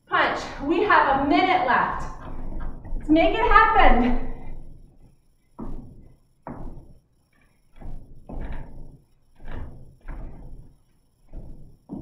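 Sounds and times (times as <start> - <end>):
feet thumping on floor: 0.6 - 7.0, 7.7 - 12.0.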